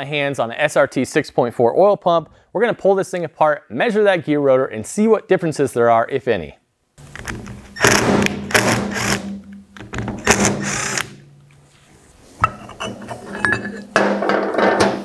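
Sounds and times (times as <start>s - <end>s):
cordless drill spinning screws: 7.2s - 9.3s, 10.2s - 11.1s.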